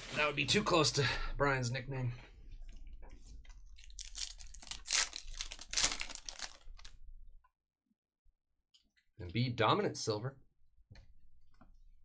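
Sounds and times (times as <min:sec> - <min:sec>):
foil wrapper crinkling and tearing: 0:03.8 - 0:07.0.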